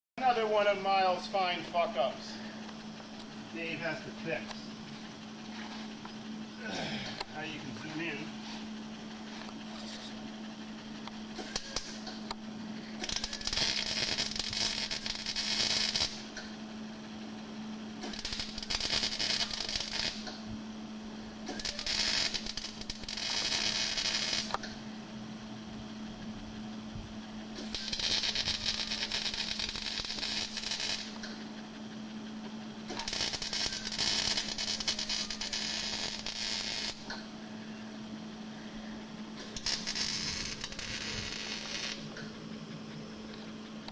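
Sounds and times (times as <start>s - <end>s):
steady low hum: 0.2s - 43.9s
welding arc crackling: 11.0s - 16.6s, 17.9s - 20.5s, 21.3s - 24.8s, 27.4s - 31.4s, 32.7s - 37.2s, 39.4s - 42.4s.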